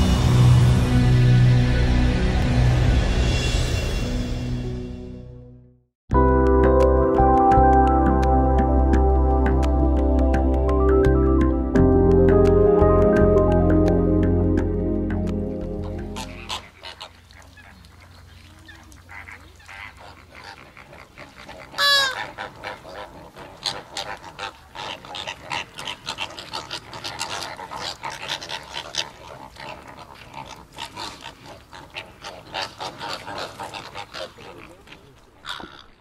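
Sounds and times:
flamingos honking: 15.7s - 36.0s.

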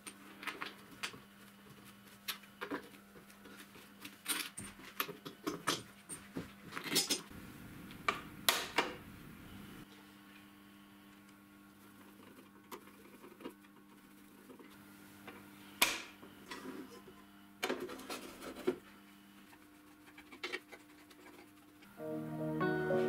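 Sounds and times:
music: 21.9s - 23.0s.

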